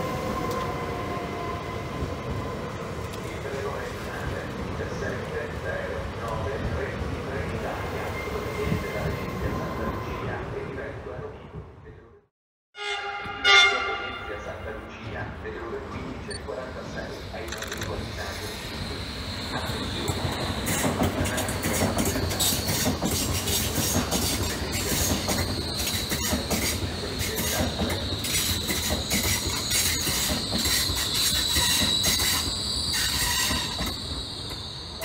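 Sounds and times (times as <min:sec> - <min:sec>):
train wheels clattering over rail joints: 0:20.0 - 0:34.0
high wheel squeal: 0:24.6 - 0:35.0.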